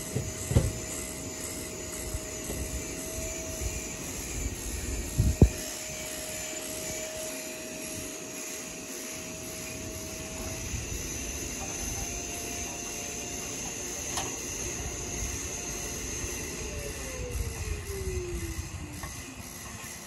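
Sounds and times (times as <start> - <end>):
distant motor droning with whine: 0.0 - 20.0.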